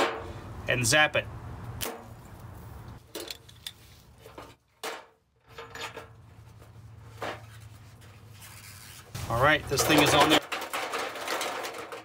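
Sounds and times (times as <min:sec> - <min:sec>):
metal tools clicking and scraping: 0:03.0 - 0:04.6.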